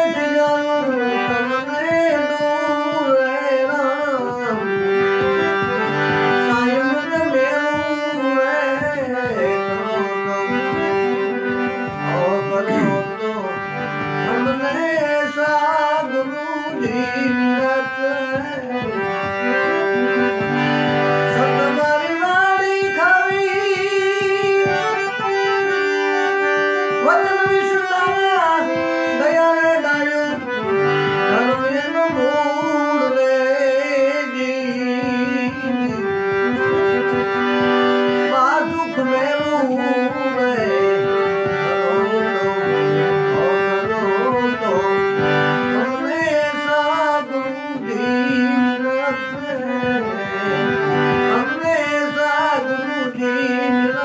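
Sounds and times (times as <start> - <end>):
harmonium chords: 0.0 - 54.0
man singing: 0.0 - 54.0.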